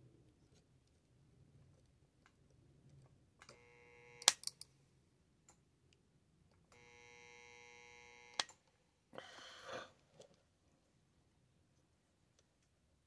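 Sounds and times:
soldering unit buzzing: 3.5 - 4.6, 6.7 - 8.6.

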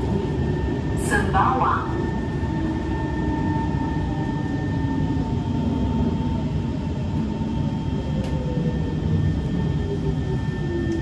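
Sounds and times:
train ride rumble: 0.0 - 11.0.

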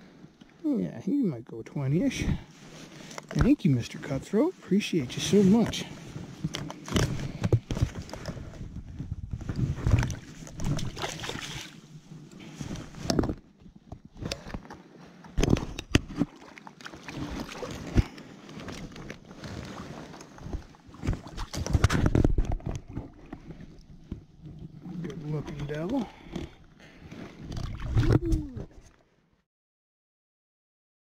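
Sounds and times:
water splashing and sloshing: 1.8 - 29.0
rustling and handling noises: 2.0 - 16.3.

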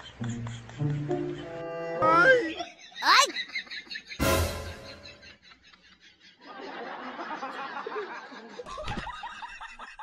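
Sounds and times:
person laughing: 2.6 - 3.7.

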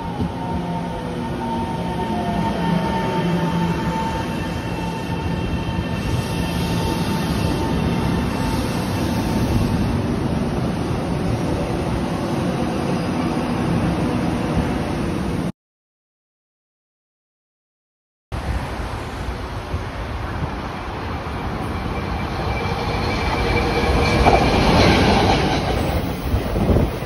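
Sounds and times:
train wheels rumbling: 21.3 - 27.0.

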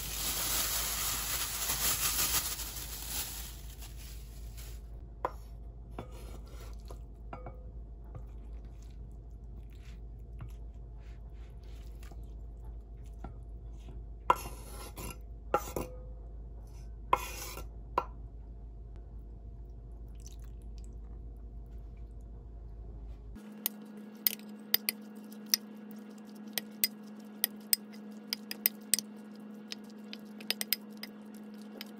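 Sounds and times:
plastic bag crinkling: 0.0 - 5.0.

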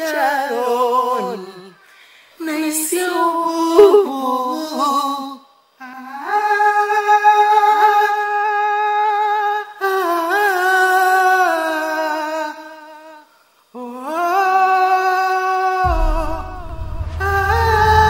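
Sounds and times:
woman humming a slow melody: 3.6 - 4.2
low rumble: 15.9 - 18.0.

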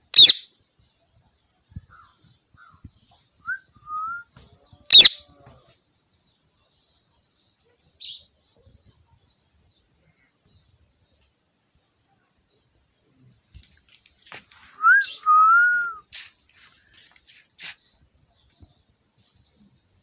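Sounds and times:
parakeet screeching: 0.2 - 0.4, 4.9 - 5.2
soft rising whistles: 14.8 - 16.1.

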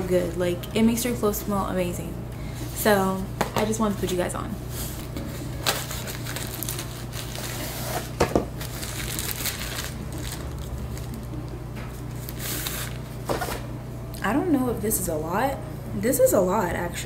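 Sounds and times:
steady low hum: 0.0 - 17.0
plastic bag crinkling: 5.0 - 13.6.

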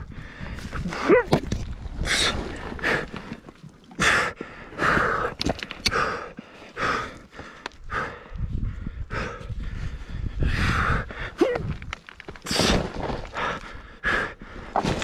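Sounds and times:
person panting heavily: 0.0 - 1.3, 4.0 - 11.5, 13.3 - 14.8.

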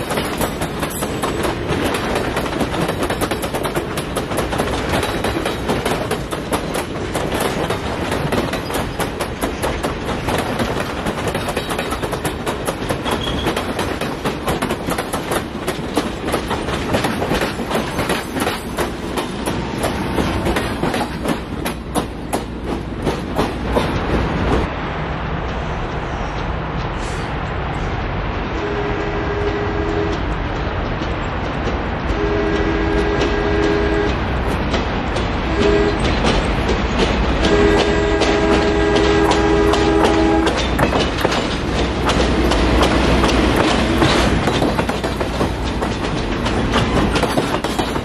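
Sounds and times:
train wheels clattering over rails: 0.0 - 28.4, 29.3 - 48.0.

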